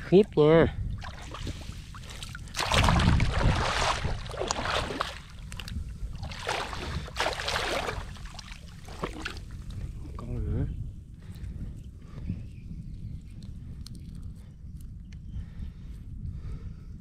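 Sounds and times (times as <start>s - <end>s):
steady low rumble: 0.0s - 17.0s
water splashing at boat side: 1.0s - 9.8s.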